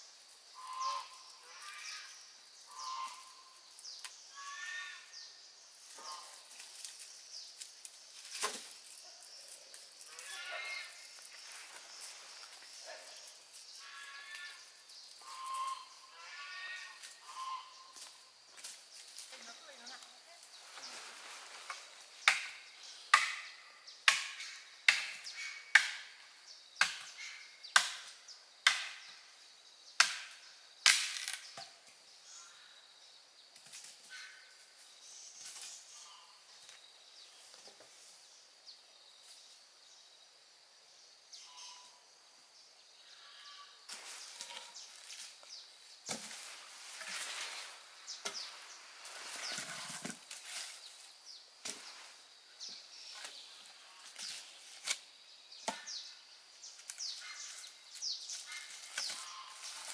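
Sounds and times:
rustling and small knocks: 6.5 - 10.2, 18.0 - 23.5, 43.9 - 55.0, 56.7 - 59.9
blade chopping wood: 30.0 - 31.4.

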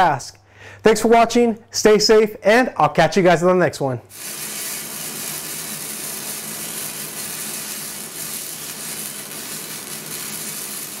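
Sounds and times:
welding arc crackling and hissing: 4.1 - 11.0.

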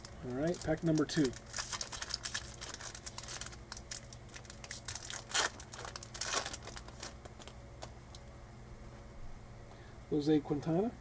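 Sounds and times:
foil wrapper tearing and crinkling: 0.0 - 7.6.

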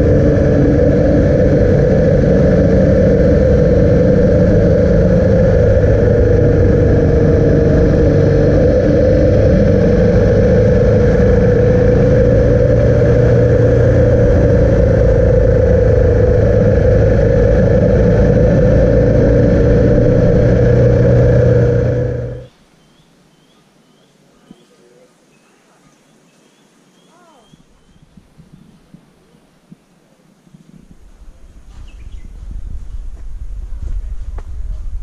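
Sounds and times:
motorcycle engine running: 0.0 - 22.5
wind and road noise: 0.0 - 23.3, 26.0 - 35.0
faint bird chirps: 22.7 - 28.8, 31.8 - 32.4.

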